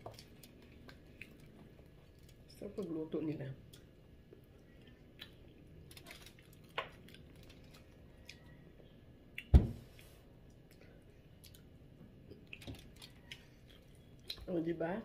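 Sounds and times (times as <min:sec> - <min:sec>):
loud thump: 0:09.5 - 0:09.8.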